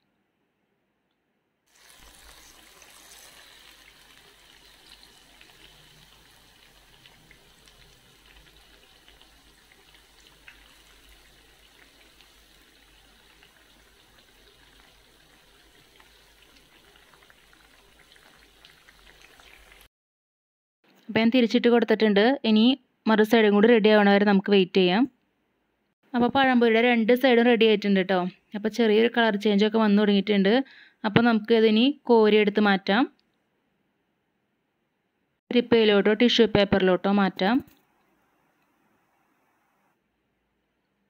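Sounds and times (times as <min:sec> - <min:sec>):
deep-frying sizzle: 0:01.7 - 0:19.9.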